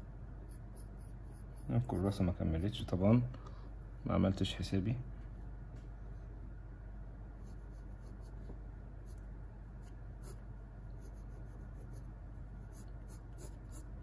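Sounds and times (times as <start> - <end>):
pencil scratching on paper: 0.4 - 2.8, 7.4 - 9.2, 9.8 - 14.0.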